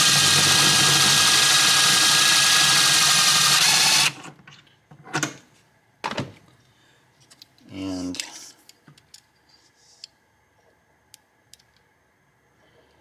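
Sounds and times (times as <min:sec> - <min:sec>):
power drill whining: 0:00.0 - 0:04.2.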